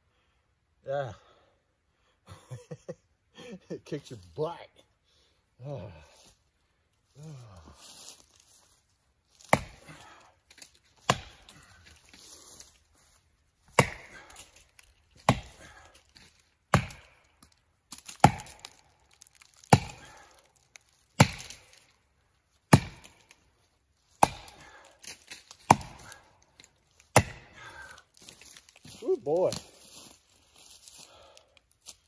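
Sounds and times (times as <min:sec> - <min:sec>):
axe chopping tree trunk: 0:09.4 - 0:12.2, 0:13.6 - 0:22.0, 0:22.6 - 0:23.4, 0:24.1 - 0:29.6.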